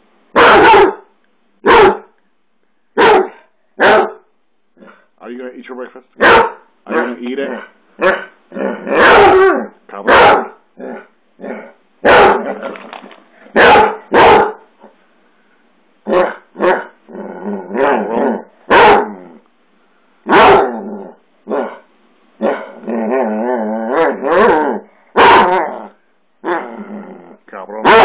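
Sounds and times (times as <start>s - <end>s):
dog barking: 0.4s - 2.2s, 3.0s - 5.0s, 6.2s - 7.3s, 8.0s - 10.6s, 11.6s - 12.6s, 13.5s - 14.7s, 16.1s - 17.0s, 17.8s - 19.2s, 20.3s - 20.8s, 21.5s - 22.8s, 24.0s - 25.7s
dog grumbling moans: 17.1s - 18.5s, 25.6s - 27.5s.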